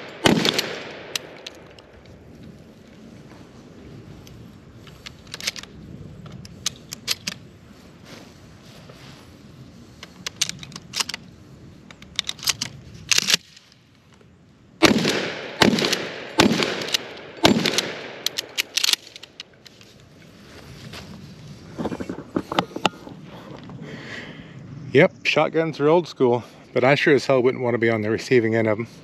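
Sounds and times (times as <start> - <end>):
shotgun blasts with echo: 0.0 - 1.4, 14.8 - 18.3.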